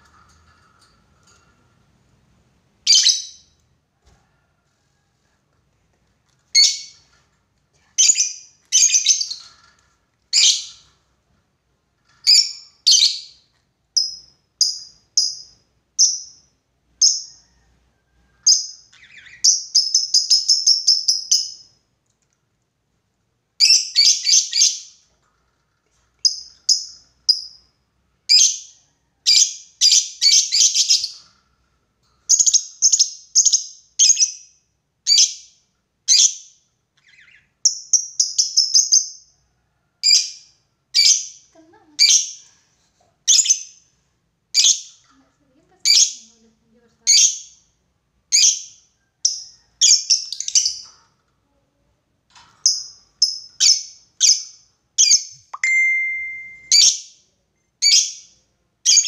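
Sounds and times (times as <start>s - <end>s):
lovebird chirping and chattering: 2.9s - 3.5s, 6.6s - 7.0s, 8.0s - 9.6s, 10.3s - 11.0s, 12.2s - 13.4s, 18.5s - 21.7s, 23.6s - 25.0s, 26.2s - 27.6s, 29.3s - 31.2s, 32.3s - 34.5s, 35.1s - 35.5s, 36.1s - 39.2s, 40.0s - 42.5s, 43.2s - 43.8s, 44.5s - 45.0s, 45.8s - 46.4s, 47.1s - 47.7s, 48.3s - 50.9s, 52.6s - 57.2s, 57.8s - 59.0s.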